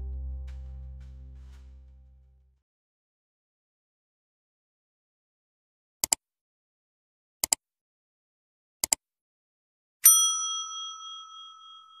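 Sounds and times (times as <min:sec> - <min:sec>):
notification bell ding: 0:10.1 - 0:12.0.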